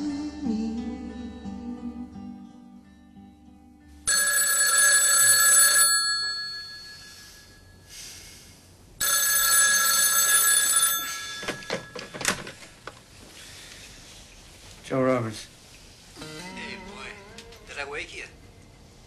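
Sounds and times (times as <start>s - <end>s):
telephone bell ringing: 4.1s - 7.8s, 9.0s - 12.5s.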